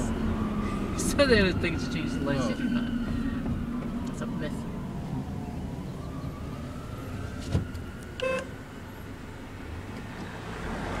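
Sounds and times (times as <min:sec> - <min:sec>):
car engine and road noise: 0:00.0 - 0:11.0
short beep: 0:08.2 - 0:08.5.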